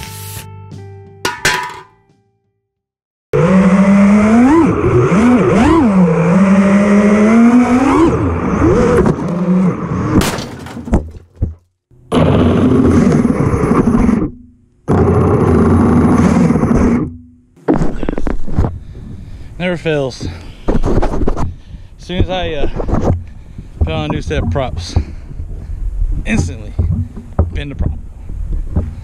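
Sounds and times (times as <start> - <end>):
quadcopter motors whining: 3.4 - 10.1.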